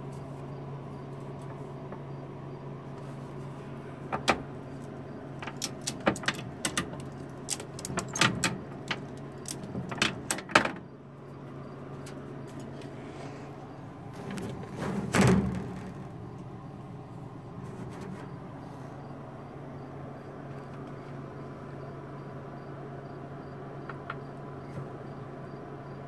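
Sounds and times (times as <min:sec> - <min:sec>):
steady low hum: 0:00.0 - 0:26.0
knocks and rattles in glass enclosure: 0:04.0 - 0:10.9, 0:14.1 - 0:16.7, 0:17.4 - 0:18.5.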